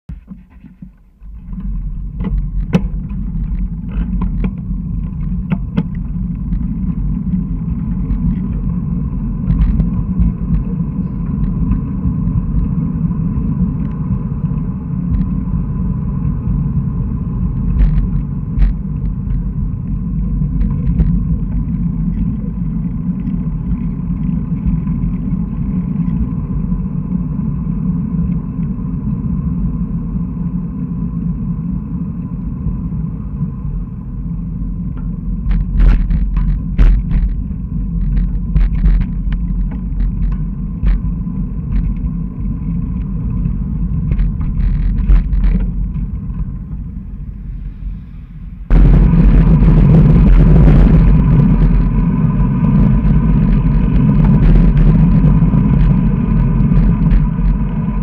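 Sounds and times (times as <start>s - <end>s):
clicks and knocks from bumps: 0.1s - 8.7s, 9.4s - 12.7s, 17.6s - 19.5s, 35.0s - 42.2s, 42.8s - 46.8s
tyres rumbling on asphalt: 0.1s - 58.0s.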